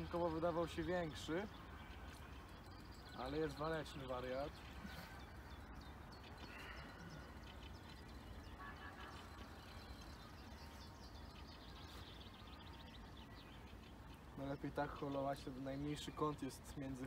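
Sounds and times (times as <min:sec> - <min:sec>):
faint bird calls: 0:04.6 - 0:15.2.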